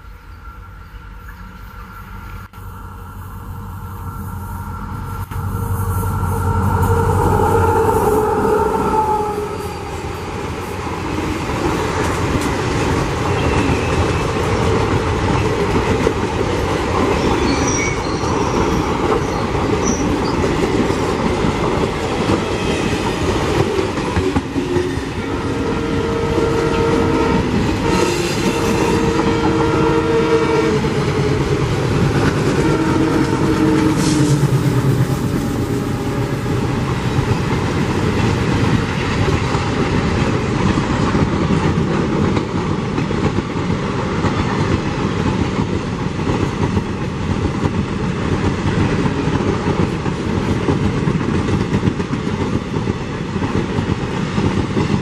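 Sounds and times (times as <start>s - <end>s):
diesel locomotive horn: 0.0s - 10.7s, 22.3s - 37.1s.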